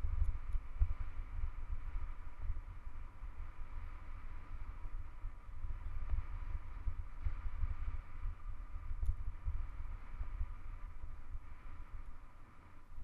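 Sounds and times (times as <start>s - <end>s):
wind buffeting microphone: 0.0s - 13.0s
light tick: 0.1s - 1.0s, 5.9s - 7.0s, 8.9s - 9.3s.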